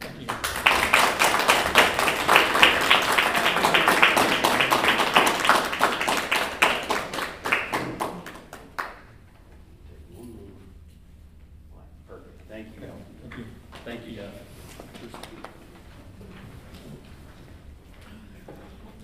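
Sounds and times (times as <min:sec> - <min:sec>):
people applauding: 0:00.0 - 0:09.2, 0:14.9 - 0:15.6.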